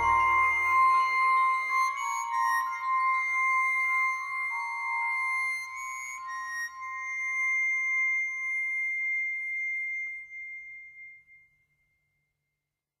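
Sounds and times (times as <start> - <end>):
slow instrumental piece held note: 0.0 - 1.0.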